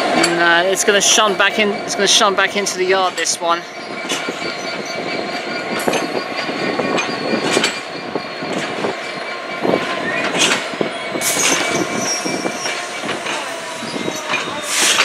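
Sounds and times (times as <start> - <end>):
train wheels knocking over rail joints: 3.0 - 15.0
thin wheel squeal: 3.6 - 15.0.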